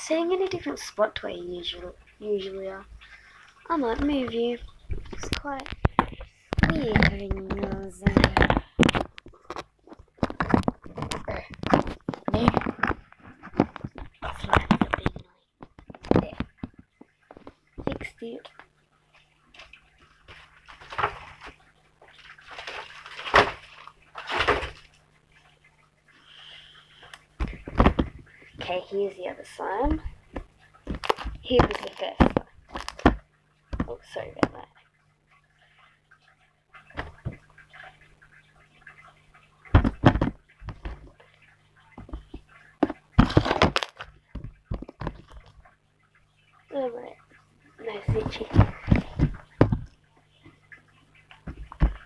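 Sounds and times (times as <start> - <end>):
rustling and scraping handling noise: 3.0 - 18.3, 19.1 - 25.0, 39.8 - 45.8, 47.8 - 50.6
slime squelching and slapping: 3.6 - 16.8, 29.6 - 34.7.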